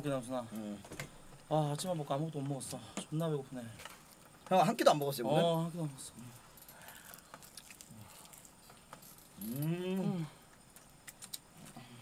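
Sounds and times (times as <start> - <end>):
man humming mmm while eating: 9.4 - 10.5.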